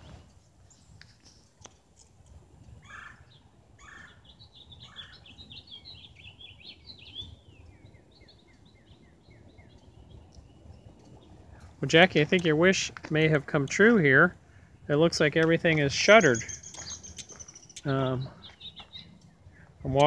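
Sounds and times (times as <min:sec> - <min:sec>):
songbird warbling: 0:02.8 - 0:11.7, 0:15.9 - 0:19.7.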